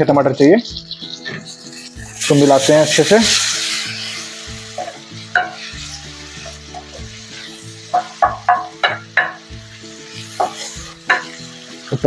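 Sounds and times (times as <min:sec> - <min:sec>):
background music: 0:00.0 - 0:12.0
food sizzling in oil: 0:00.0 - 0:12.0
spatula scraping metal pan: 0:00.7 - 0:09.4, 0:10.0 - 0:11.6.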